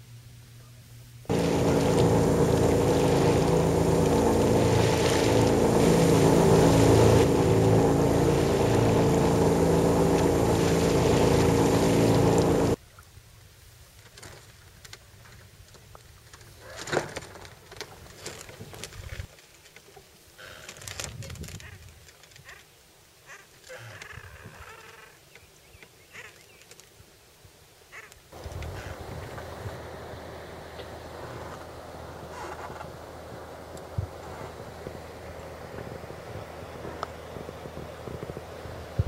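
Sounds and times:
boat engine running: 0:01.2 - 0:12.8, 0:28.4 - 0:39.0.

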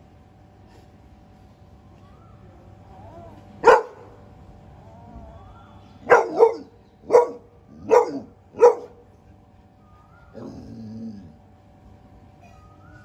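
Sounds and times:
dog barking: 0:03.6 - 0:04.2, 0:06.0 - 0:09.0.

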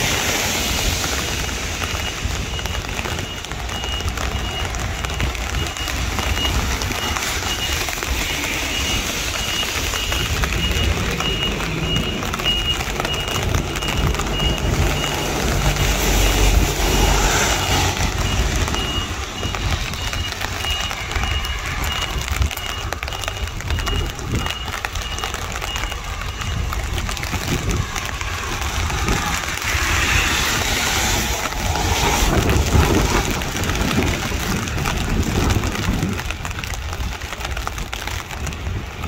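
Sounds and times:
heavy rain hissing: 0:00.0 - 0:04.3, 0:05.0 - 0:20.0, 0:26.0 - 0:36.0
vehicle engine rumble: 0:00.0 - 0:39.0
high beeping alarm: 0:01.3 - 0:33.2.

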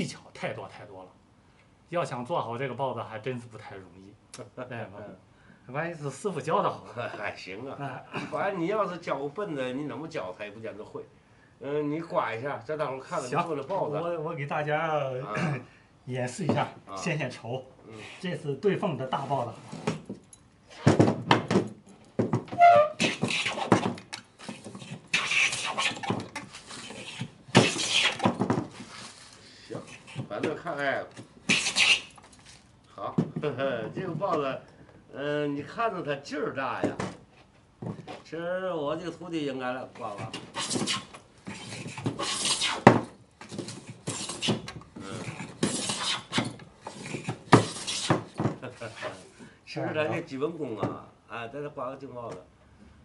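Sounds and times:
wooden plane rasping on board: 0:40.3 - 0:49.2.

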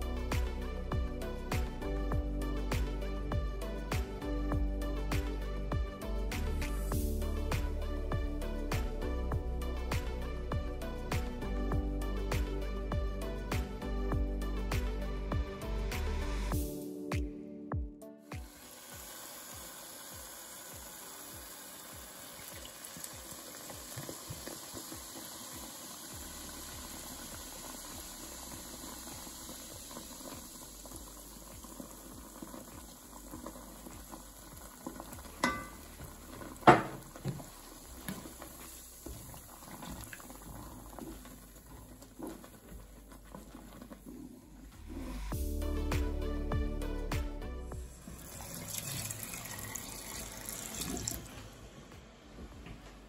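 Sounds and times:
ale sizzling in hot pot: 0:18.3 - 0:46.1, 0:47.8 - 0:51.4.

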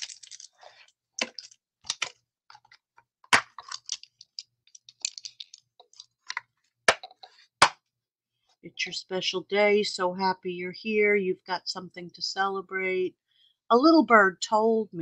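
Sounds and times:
plastic crackling: 0:00.0 - 0:07.4.

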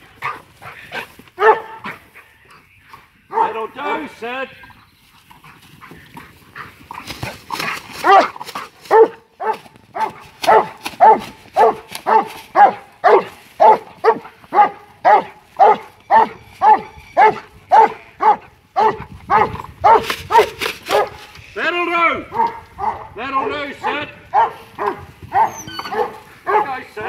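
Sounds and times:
dog barking: 0:00.2 - 0:02.0, 0:03.3 - 0:03.6, 0:08.0 - 0:21.2, 0:22.3 - 0:26.8.

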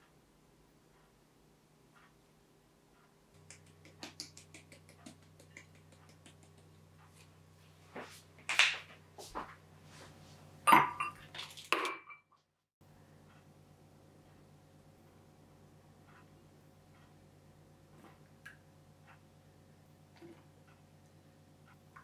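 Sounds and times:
dishes and glass clinking: 0:10.7 - 0:12.3.

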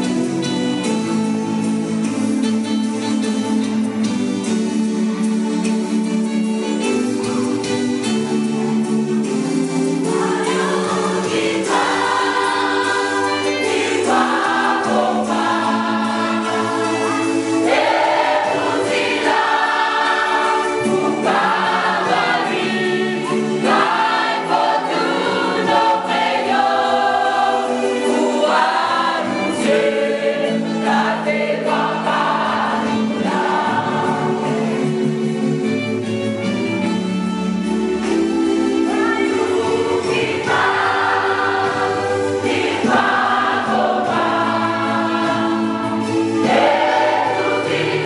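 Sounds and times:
choir singing gospel: 0:09.2 - 0:36.0, 0:38.0 - 0:48.0.

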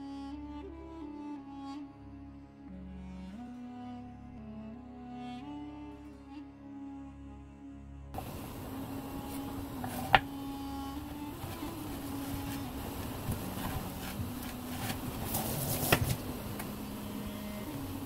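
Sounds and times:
steady low hum: 0:08.2 - 0:18.0.

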